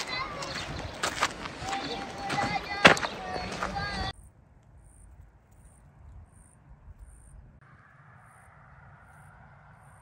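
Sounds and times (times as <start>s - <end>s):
insect chirping: 4.2s - 10.0s.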